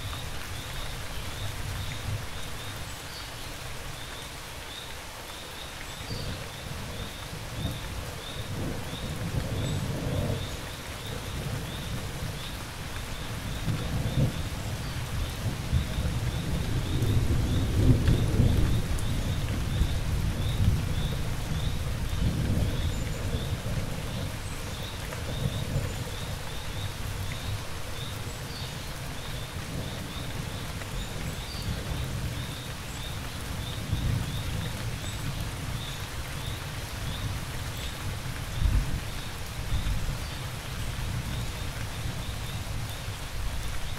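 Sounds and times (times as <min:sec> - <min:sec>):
steady rain: 0:00.0 - 0:43.9.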